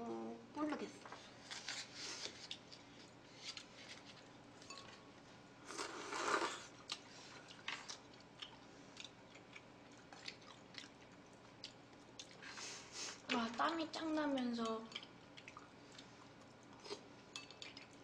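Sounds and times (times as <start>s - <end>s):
mouth eating sound: 5.7s - 7.0s.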